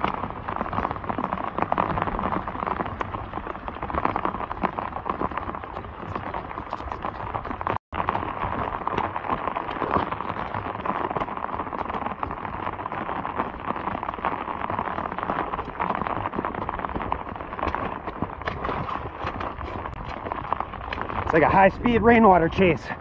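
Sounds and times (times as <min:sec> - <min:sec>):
heavy rain falling: 0:00.0 - 0:23.0.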